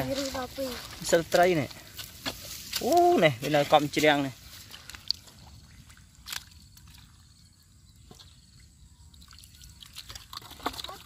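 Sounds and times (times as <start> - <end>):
water and mud splashing: 0.0 - 7.4, 8.0 - 11.0.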